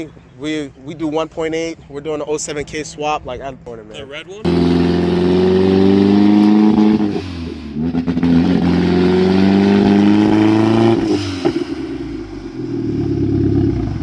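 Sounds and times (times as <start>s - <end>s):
car engine revving: 4.4s - 14.0s.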